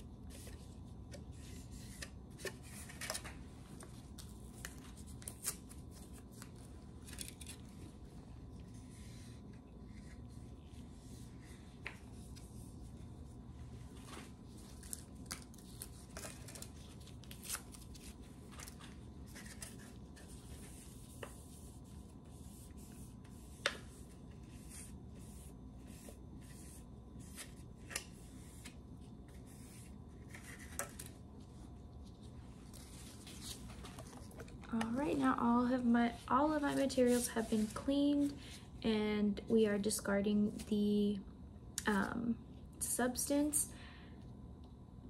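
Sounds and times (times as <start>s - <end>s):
gloved hands rubbing and rustling: 36.0s - 38.4s.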